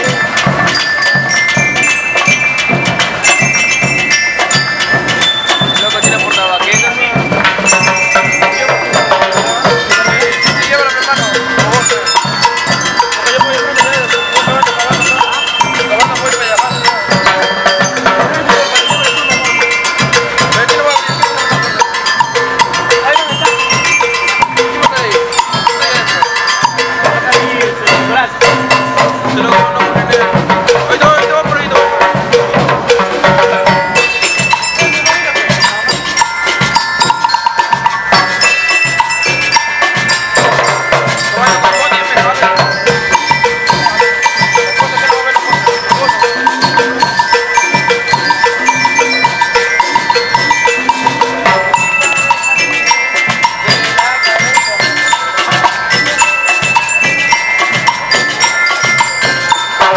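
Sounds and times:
bass drum: 0.0 - 59.9
bell lyres ringing melody: 0.0 - 59.9
drum kit: 0.0 - 59.9
snare drums: 0.0 - 59.9.

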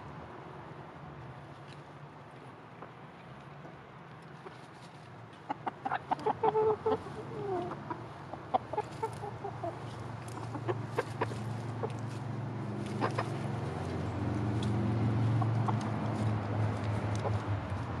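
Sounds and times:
chickens clucking: 5.4 - 17.5
chickens pecking clicks: 10.2 - 18.0.

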